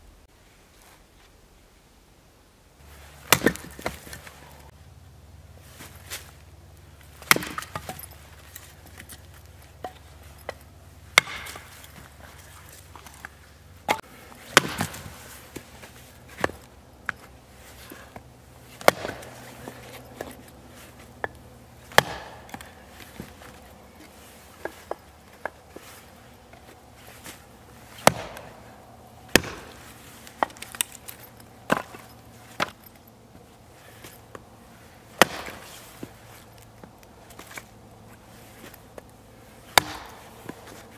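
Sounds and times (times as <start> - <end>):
hatchet chopping firewood: 3.2 - 4.6, 6.9 - 12.2, 13.0 - 33.0, 35.1 - 40.9.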